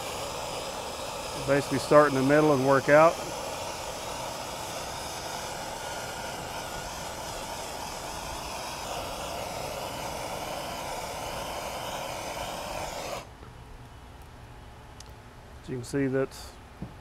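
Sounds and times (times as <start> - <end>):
gas torch flame roaring: 0.0 - 13.3.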